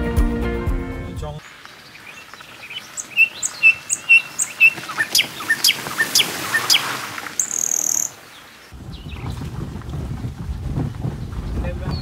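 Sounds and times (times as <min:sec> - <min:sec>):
wild birds chirping and whistling: 0:01.4 - 0:09.3.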